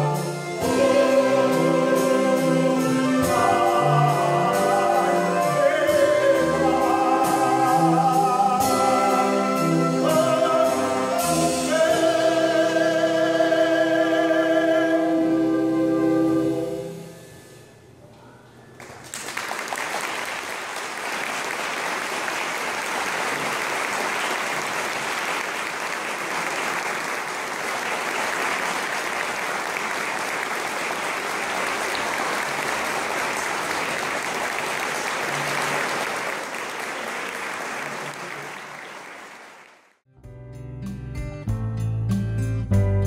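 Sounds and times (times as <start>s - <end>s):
audience applauding: 18.8s - 40.0s.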